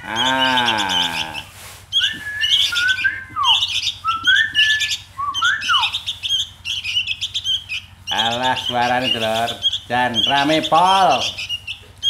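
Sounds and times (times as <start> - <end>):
man's drawn-out vocal sound: 0.0 - 1.5
birds chirping and whistling: 0.0 - 12.0.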